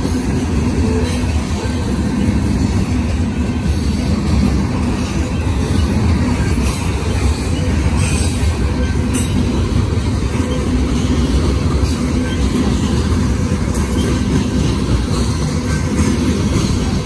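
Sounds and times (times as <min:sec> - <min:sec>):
steel wheels rumbling on rail: 0:00.0 - 0:17.0.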